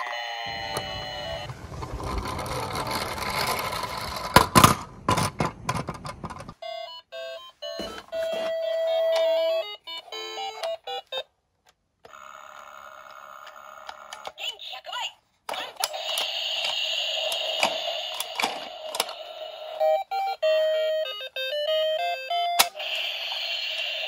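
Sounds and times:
toy electronic siren: 0.0s - 4.2s, 6.6s - 11.3s, 12.1s - 14.3s, 15.8s - 24.0s
plastic wheels rumbling on wood: 0.4s - 6.6s
toy electronic beeps and melody: 6.6s - 11.3s, 16.0s - 24.0s.

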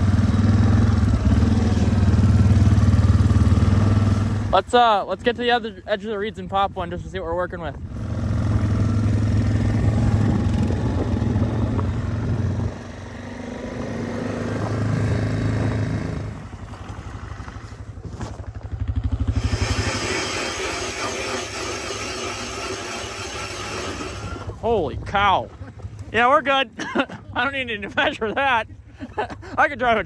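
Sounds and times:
vehicle engine running: 0.0s - 30.0s
power ice auger drilling: 19.2s - 24.6s.

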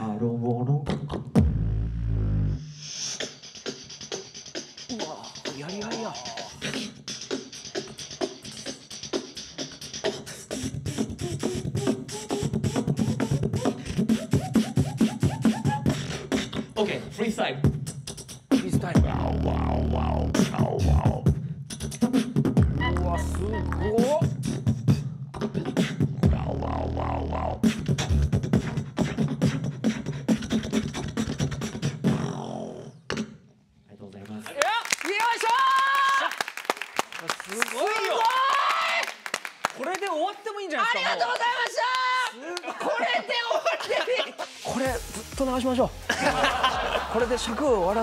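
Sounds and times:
warbling vocal lines: 0.0s - 17.2s, 17.9s - 33.6s
beatboxing: 0.0s - 33.6s
heavy bass line: 0.9s - 2.9s, 18.8s - 21.3s, 22.6s - 24.4s, 26.2s - 28.8s, 44.7s - 48.0s.

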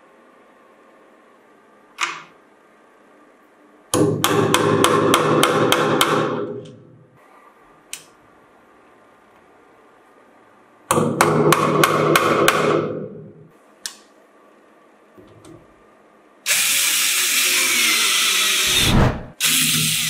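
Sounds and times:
hammer striking a nail: 3.9s - 6.6s, 10.9s - 13.1s.

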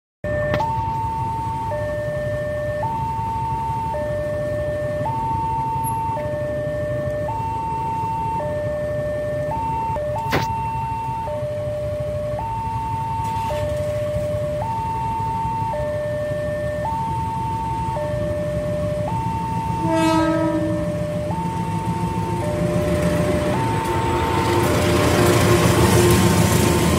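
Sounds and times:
level crossing two-tone alarm: 0.2s - 24.7s
low traffic rumble: 0.2s - 26.9s
short horn blast: 19.8s - 21.1s.

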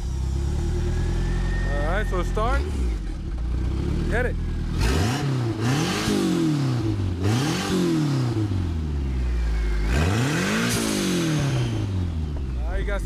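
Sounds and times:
turbocharged engine revving: 0.0s - 13.0s.

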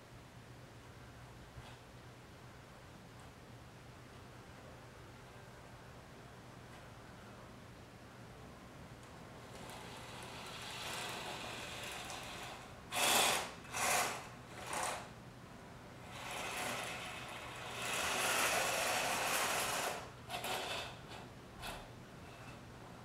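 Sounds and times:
electric motors whirring: 9.5s - 15.1s, 16.1s - 21.0s.

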